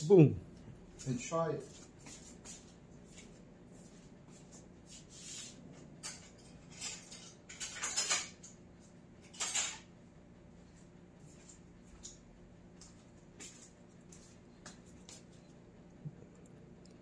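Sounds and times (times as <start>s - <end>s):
cutlery clicking and clattering: 6.0s - 8.6s, 9.2s - 9.9s.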